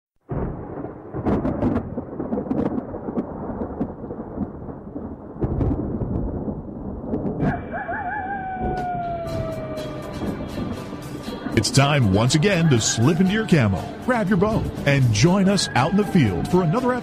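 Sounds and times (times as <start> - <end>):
thunder-like rumbling with crackles: 0.2 - 12.4.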